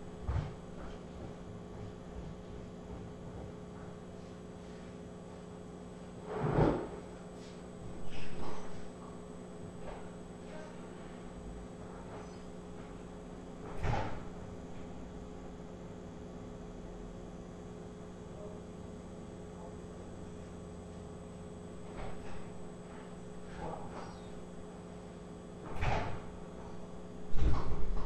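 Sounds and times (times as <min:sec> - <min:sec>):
low electrical hum: 0:00.0 - 0:28.0
door banging shut: 0:25.7 - 0:26.3
knocks and thumps: 0:27.3 - 0:28.0.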